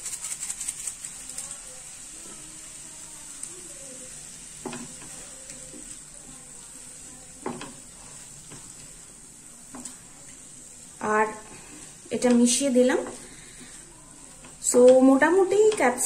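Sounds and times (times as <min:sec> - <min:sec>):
vegetables sizzling in a frying pan: 0:00.0 - 0:16.0
spatula scraping a pan: 0:04.0 - 0:16.0.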